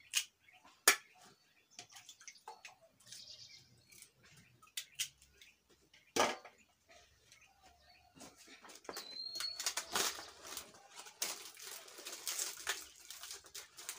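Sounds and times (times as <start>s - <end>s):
water splashing and dripping: 1.7s - 3.2s.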